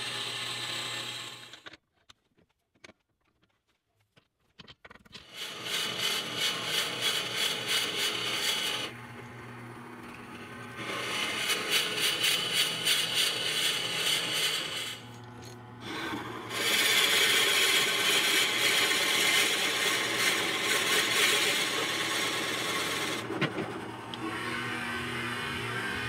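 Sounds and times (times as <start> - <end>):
lathe low hum: 0.0 - 1.6, 5.4 - 26.0
drill bit scraping into wood: 5.3 - 9.0, 10.8 - 23.3.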